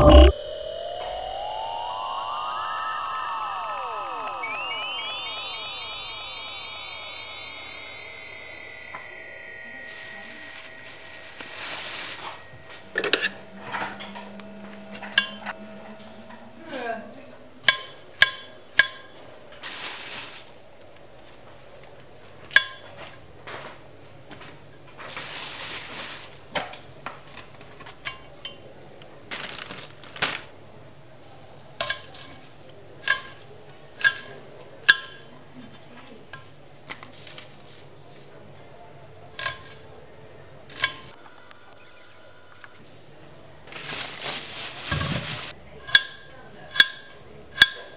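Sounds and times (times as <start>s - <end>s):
rustling: 43.8s - 45.6s.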